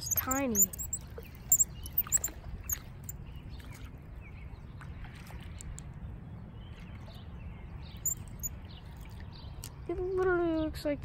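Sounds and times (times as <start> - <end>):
faint bird chirps: 0.0 - 3.6, 8.0 - 8.6.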